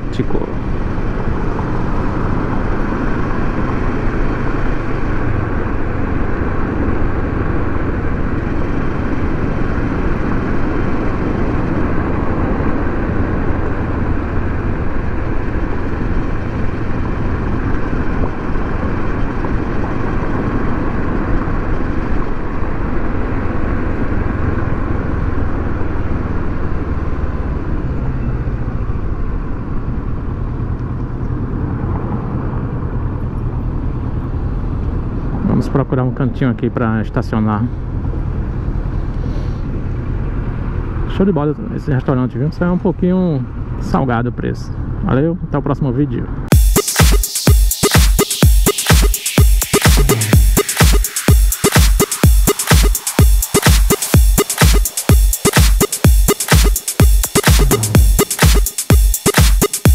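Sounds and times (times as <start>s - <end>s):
motorcycle engine running: 0.0s - 27.9s, 46.5s - 46.8s, 49.3s - 59.9s.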